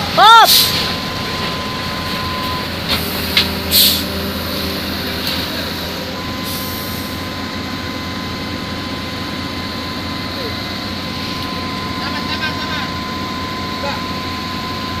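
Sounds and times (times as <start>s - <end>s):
truck diesel engine running: 0.0s - 15.0s
short sharp hisses: 3.7s - 4.1s.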